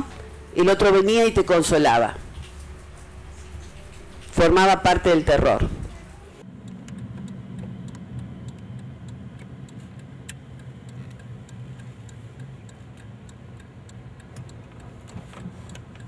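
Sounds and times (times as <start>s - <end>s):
engine and road hum: 2.1s - 4.5s, 5.6s - 16.0s.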